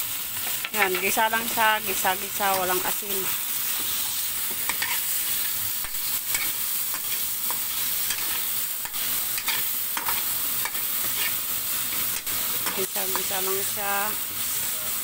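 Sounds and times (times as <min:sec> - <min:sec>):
chicken and onion sizzling in wok: 0:00.0 - 0:15.0.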